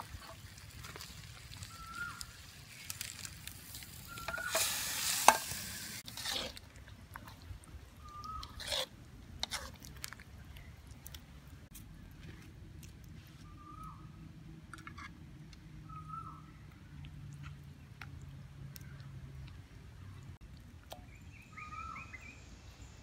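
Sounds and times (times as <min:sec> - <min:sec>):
bird calling: 0:01.6 - 0:02.9, 0:04.0 - 0:05.0, 0:08.0 - 0:08.6, 0:13.4 - 0:14.2, 0:15.8 - 0:16.6, 0:21.0 - 0:22.4
ladle scraping metal pot: 0:04.1 - 0:06.6, 0:08.3 - 0:09.8.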